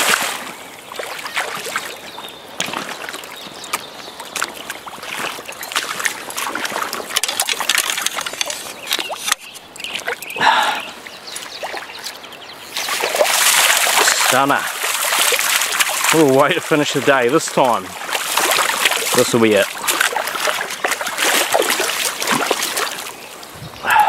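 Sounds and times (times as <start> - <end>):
stream running: 0.0 - 24.0
water splashing and sloshing: 0.0 - 24.0.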